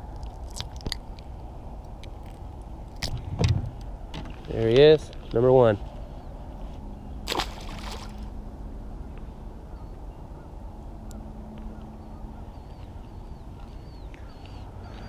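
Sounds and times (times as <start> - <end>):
low outdoor rumble: 0.0 - 15.0
fish splashing into river: 7.3 - 8.2
faint bird calls: 9.1 - 15.0.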